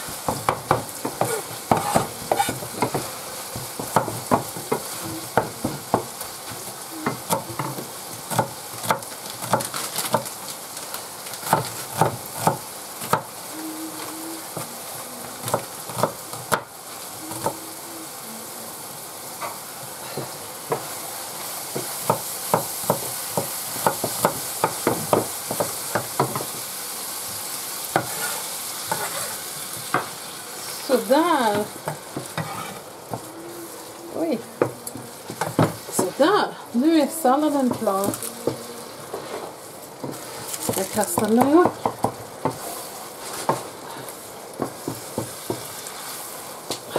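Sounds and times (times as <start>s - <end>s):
meat sizzling in a pan: 0.0s - 46.9s
spatula scraping a pan: 0.3s - 6.0s, 27.9s - 30.2s, 30.9s - 33.8s.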